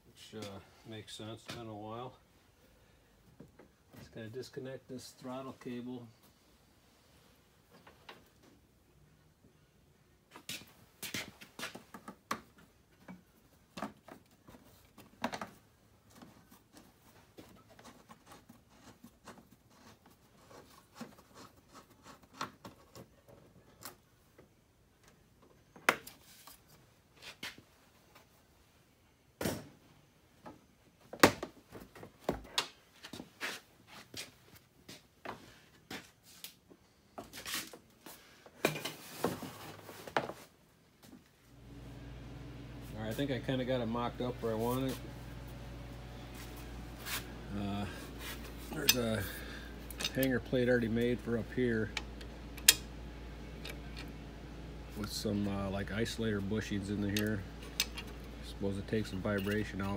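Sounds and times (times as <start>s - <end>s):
clicks and taps handling wiring: 49.8s - 52.9s, 56.6s - 59.9s.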